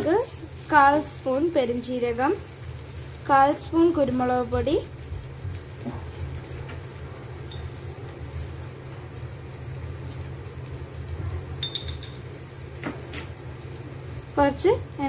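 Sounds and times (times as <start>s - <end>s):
food sizzling in pot: 0.0s - 15.0s.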